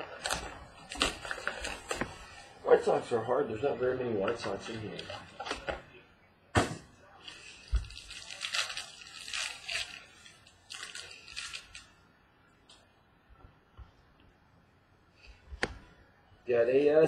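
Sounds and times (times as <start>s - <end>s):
crinkling plastic wrapper: 0.0s - 2.4s, 7.2s - 12.0s.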